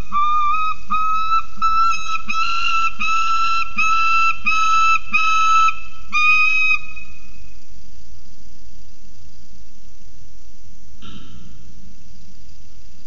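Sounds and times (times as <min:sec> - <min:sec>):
falcon calling: 0:00.0 - 0:07.2.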